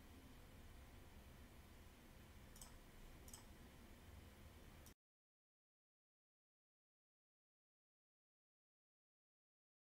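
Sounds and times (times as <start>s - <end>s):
faint clicks: 2.5s - 3.5s.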